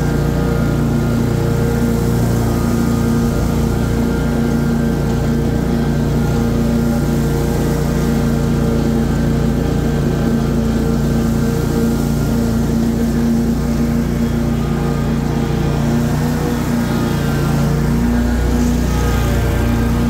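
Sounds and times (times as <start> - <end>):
lawn mower engine droning: 0.0 - 20.0.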